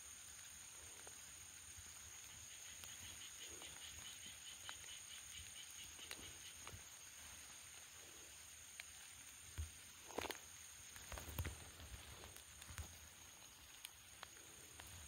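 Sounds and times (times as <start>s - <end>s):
faint clicks: 2.2s - 6.9s, 9.6s - 15.0s.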